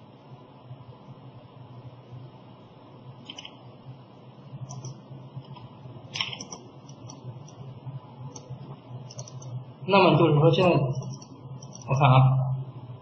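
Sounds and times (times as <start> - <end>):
low hum: 0.0 - 13.0
keyboard and mouse clicks: 3.2 - 3.6, 4.6 - 7.6, 8.3 - 9.6, 10.9 - 12.0.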